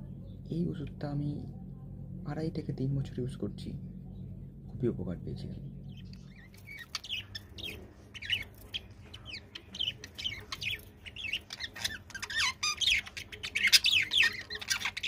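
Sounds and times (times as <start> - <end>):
budgerigars chattering: 5.9 - 15.0.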